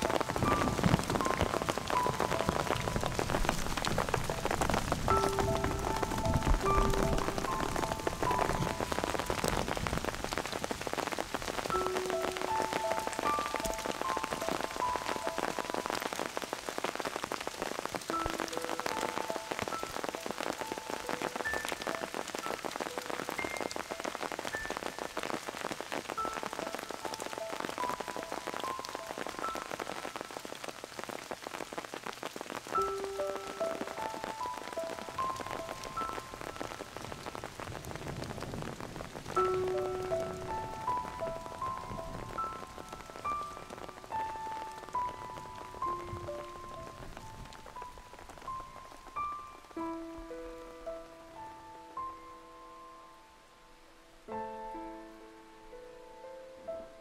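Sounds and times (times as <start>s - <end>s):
rain pattering: 0.0s - 52.2s
soft slow background music: 0.0s - 57.0s.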